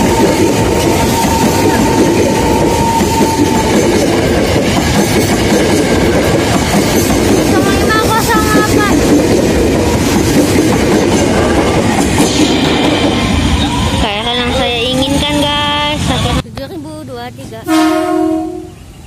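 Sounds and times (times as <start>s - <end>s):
high-pitched train squeal: 0.0s - 4.2s, 11.2s - 14.7s
train wheels rumbling on rail: 0.0s - 19.0s.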